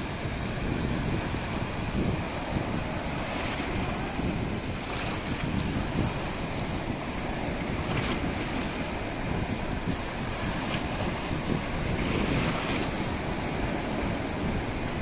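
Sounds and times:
foamy water washing in: 0.0s - 15.0s
small waves breaking: 0.0s - 15.0s.

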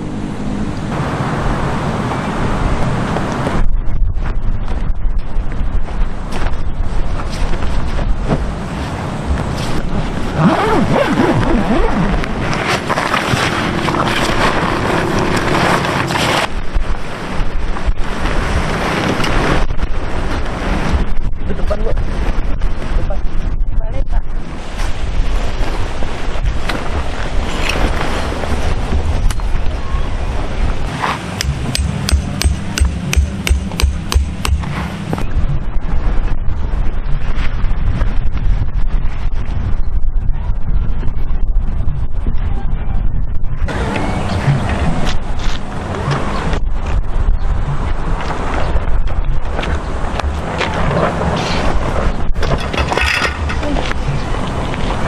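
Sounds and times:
wind buffeting microphone: 0.0s - 55.0s
hammer blows: 31.0s - 35.3s.

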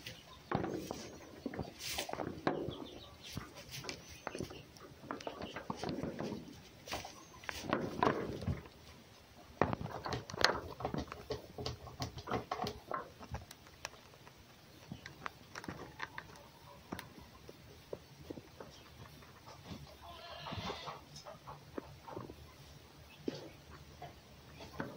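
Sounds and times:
fox rustling in straw bedding: 1.7s - 2.2s.

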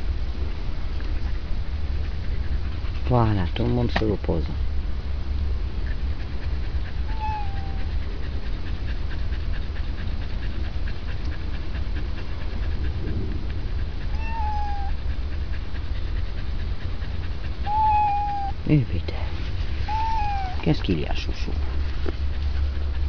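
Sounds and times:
steady low rumble: 0.0s - 23.0s
cat meowing: 7.0s - 7.9s, 14.1s - 15.0s, 17.7s - 18.6s, 19.9s - 20.6s.

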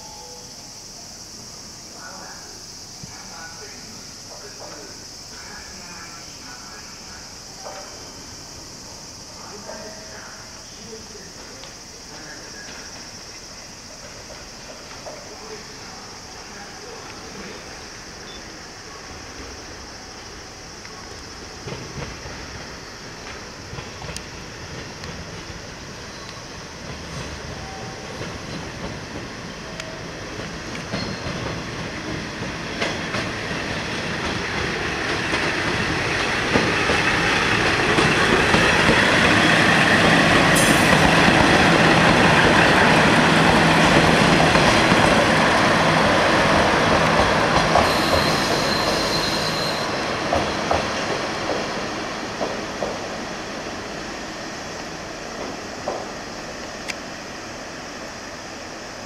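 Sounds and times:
diesel train engines running: 0.0s - 59.0s
high wheel squeal: 27.5s - 28.8s, 30.9s - 31.4s, 47.6s - 50.8s.

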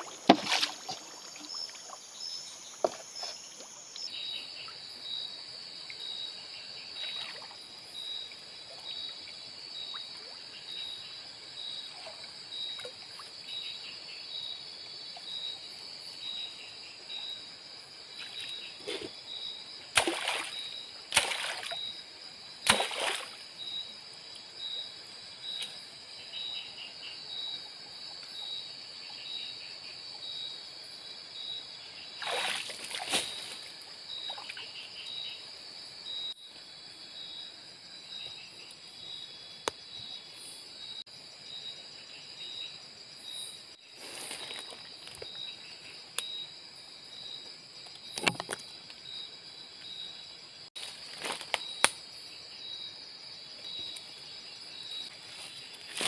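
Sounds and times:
splashes in shallow water: 0.0s - 2.0s, 19.9s - 21.9s, 22.6s - 23.5s, 32.2s - 34.6s
insects trilling and chirping: 0.0s - 56.0s.

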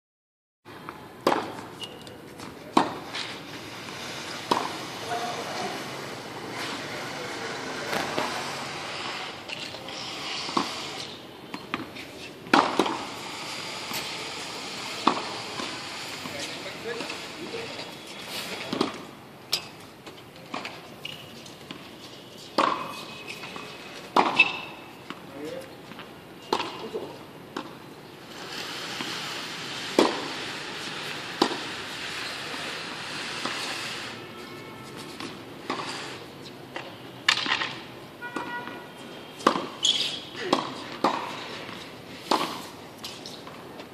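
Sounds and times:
steady background noise: 0.7s - 43.9s
background hiss: 27.2s - 36.6s
tennis ball knocks: 40.4s - 41.4s.

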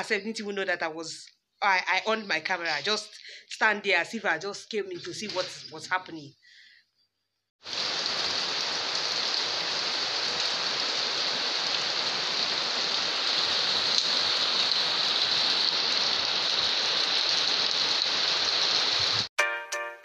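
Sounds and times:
rain falling: 5.0s - 6.0s, 7.6s - 19.3s.

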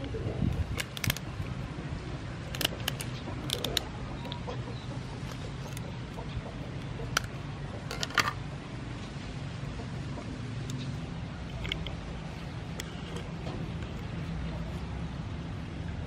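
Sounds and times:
steady low hum: 0.0s - 16.0s
scissors snipping shell: 0.7s - 1.4s, 2.5s - 4.4s.

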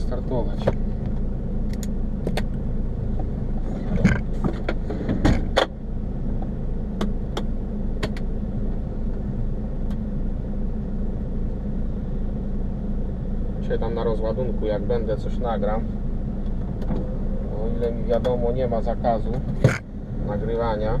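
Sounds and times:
diesel truck engine idling: 0.0s - 21.0s
clicks and knocks from cab controls: 0.5s - 2.6s, 3.2s - 5.8s, 6.4s - 8.3s, 9.8s - 10.1s, 16.4s - 17.1s, 17.8s - 18.5s, 19.2s - 19.9s.

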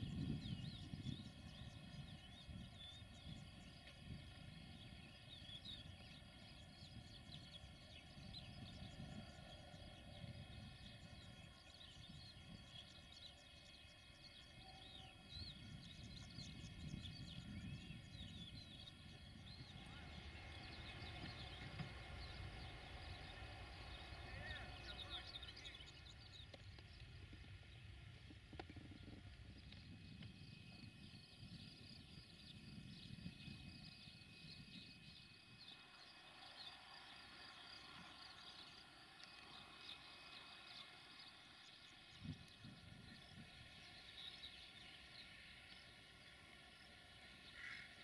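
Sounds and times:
low outdoor rumble: 0.0s - 48.0s
small birds chirping: 0.0s - 48.0s.

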